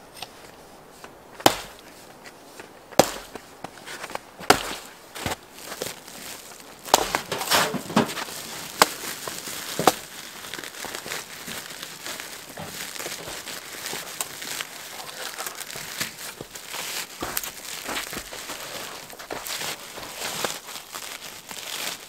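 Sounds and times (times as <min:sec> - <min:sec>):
branches snapping: 0:00.1 - 0:22.0
plastic bag crinkling: 0:04.8 - 0:22.0.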